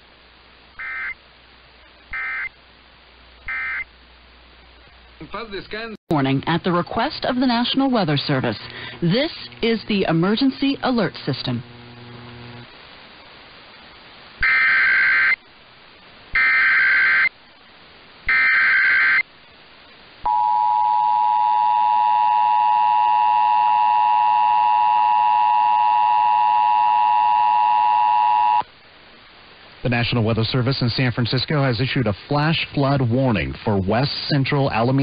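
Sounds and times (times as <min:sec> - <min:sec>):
digital data bursts: 0:02.1 - 0:02.6, 0:14.4 - 0:15.4, 0:16.4 - 0:17.3, 0:18.3 - 0:19.2.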